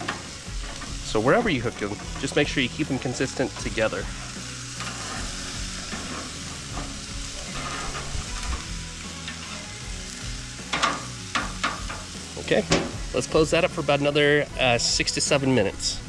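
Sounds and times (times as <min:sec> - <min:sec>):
burger patties sizzling on grill: 0:00.0 - 0:16.0.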